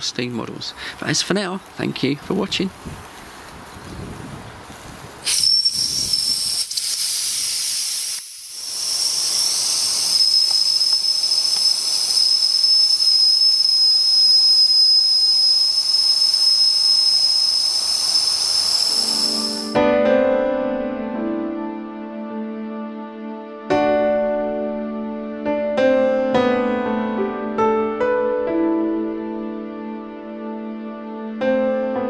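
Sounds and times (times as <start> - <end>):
steam hissing: 5.0 - 19.8
high-pitched steam whistle: 5.2 - 19.8.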